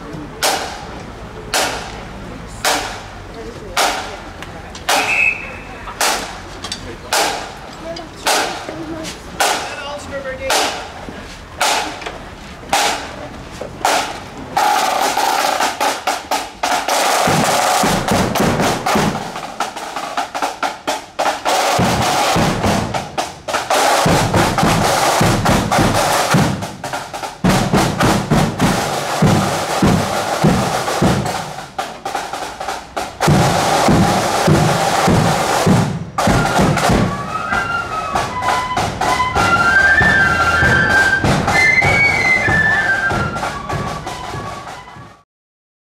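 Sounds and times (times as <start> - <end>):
flutes playing a melody: 4.9 - 5.9, 36.2 - 45.2.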